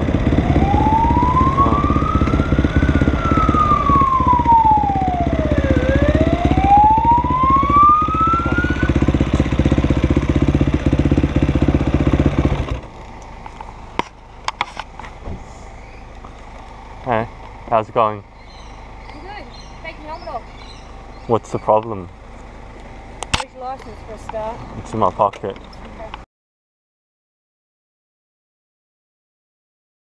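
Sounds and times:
police siren wailing: 0.0s - 9.2s
dirt bike engine running: 0.0s - 25.3s.

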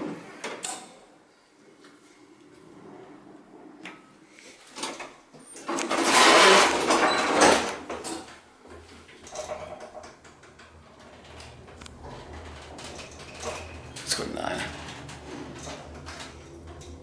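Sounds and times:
elevator doors sliding shut: 4.8s - 17.0s
elevator low hum: 8.8s - 17.0s.

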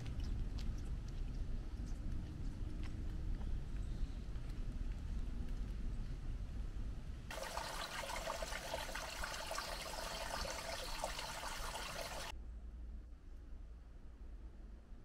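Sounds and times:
trickle of running water: 7.3s - 12.3s.

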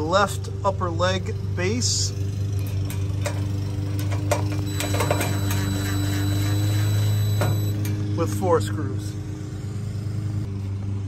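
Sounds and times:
clicks: 4.0s - 8.0s
cordless drill motor whining: 4.6s - 7.9s
low hum: 4.7s - 8.2s.

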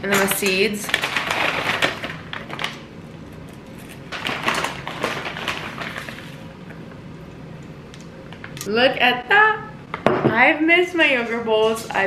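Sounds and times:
paper bag rustling: 0.7s - 2.8s, 3.7s - 6.4s
seed packet crinkling: 3.8s - 6.4s.

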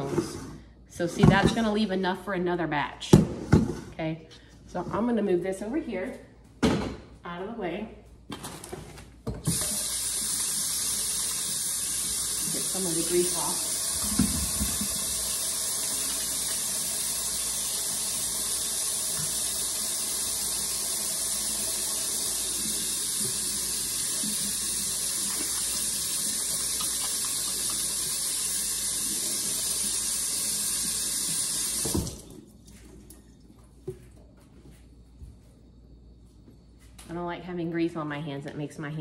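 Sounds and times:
faucet running into a steel sink: 9.5s - 32.4s.

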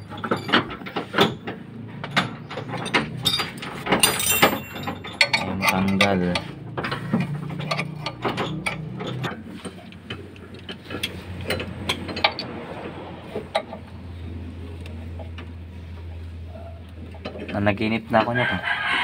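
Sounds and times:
metal clinks: 2.0s - 6.1s.

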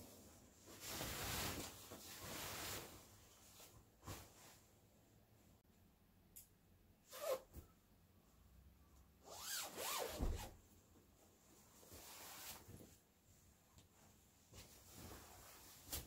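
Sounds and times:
bedding fabric rustling: 0.2s - 4.9s, 9.4s - 16.0s.

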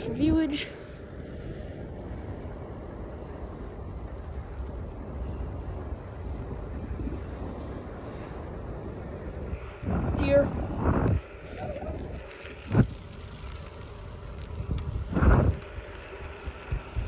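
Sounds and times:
tyres humming on asphalt: 0.0s - 17.0s
wind rush on microphone: 0.0s - 17.0s.

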